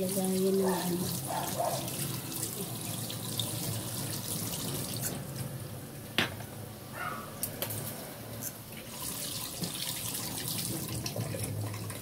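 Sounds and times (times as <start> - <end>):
tap water running into steel sink: 0.0 - 5.2, 8.7 - 12.0.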